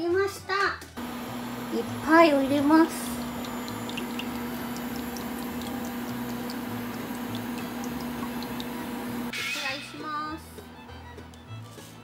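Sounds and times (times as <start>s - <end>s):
oil pouring into a metal pot: 1.0s - 9.3s
steady low hum: 1.0s - 9.3s
faint ticks and splashes: 1.8s - 9.3s.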